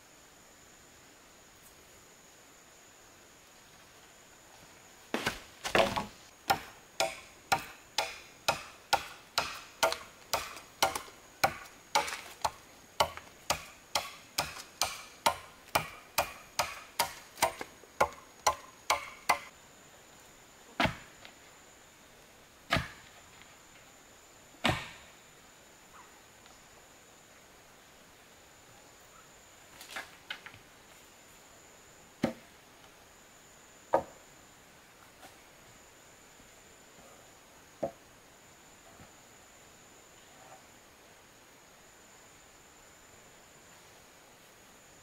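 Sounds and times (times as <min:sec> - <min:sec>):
blade chopping wood: 0:05.2 - 0:19.5, 0:22.7 - 0:23.0.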